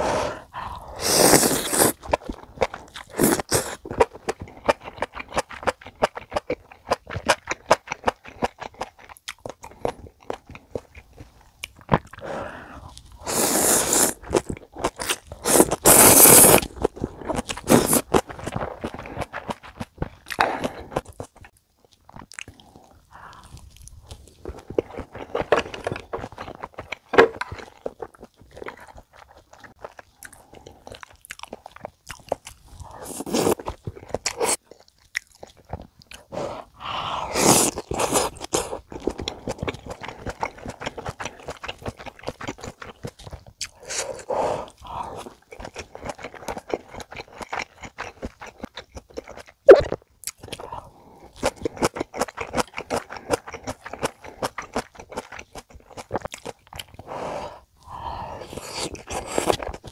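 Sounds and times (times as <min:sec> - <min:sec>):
slurping: 0:00.0 - 0:04.1, 0:12.0 - 0:19.6, 0:32.8 - 0:34.6, 0:36.1 - 0:42.8, 0:57.0 - 0:59.9
wet chewing: 0:00.5 - 0:59.9.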